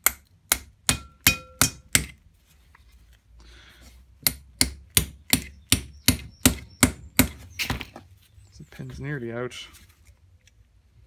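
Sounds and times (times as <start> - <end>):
hammer striking metal punch: 0.0 - 2.2
faint rustle: 2.3 - 4.1, 7.8 - 10.8.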